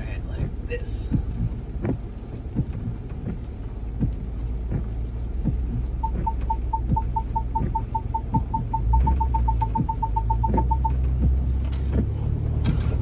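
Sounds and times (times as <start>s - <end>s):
engine rumbling at low speed: 0.0s - 13.0s
vehicle warning beeps: 6.0s - 11.0s.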